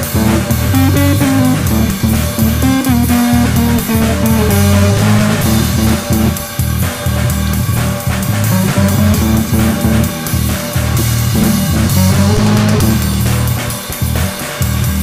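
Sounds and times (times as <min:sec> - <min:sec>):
rock band music: 0:00.0 - 0:15.0.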